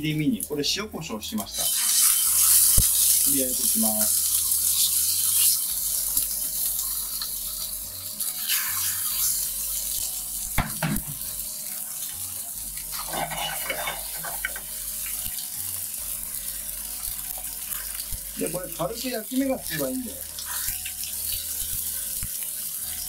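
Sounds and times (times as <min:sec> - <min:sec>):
fish sizzling in a frying pan: 0:01.4 - 0:23.0
sharp knock: 0:10.6 - 0:11.2.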